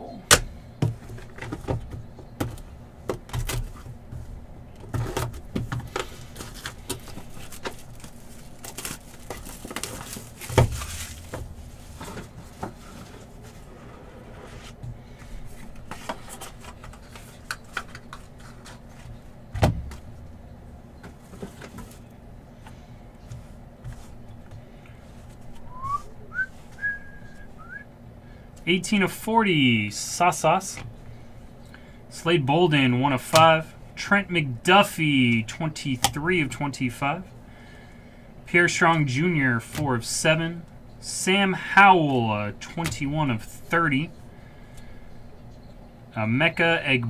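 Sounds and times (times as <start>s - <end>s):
rustling: 6.0s - 19.2s.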